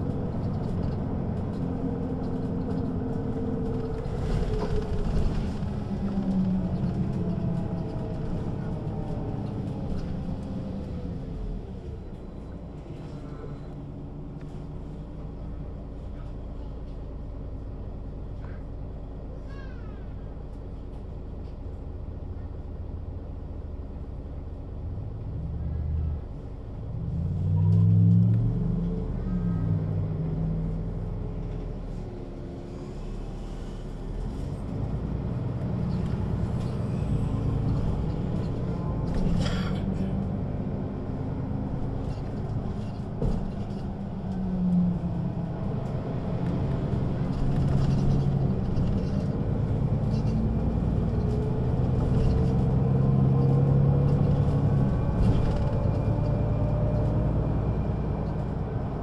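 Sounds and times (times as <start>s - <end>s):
bus diesel engine: 0.0s - 59.0s.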